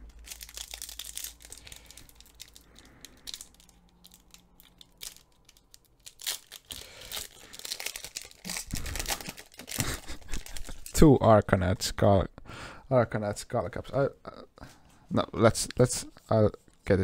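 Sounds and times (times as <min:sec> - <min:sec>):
wrapper crinkling and tearing: 0:00.0 - 0:11.0
cards rustling: 0:00.1 - 0:11.0.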